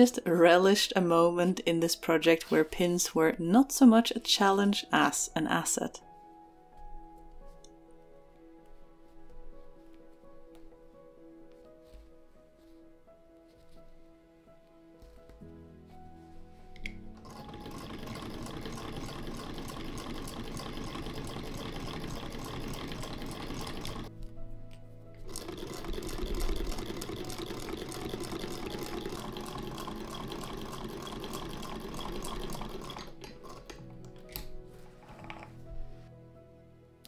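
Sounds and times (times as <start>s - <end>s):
sewing machine stitching: 17.2s - 24.1s, 25.3s - 33.8s.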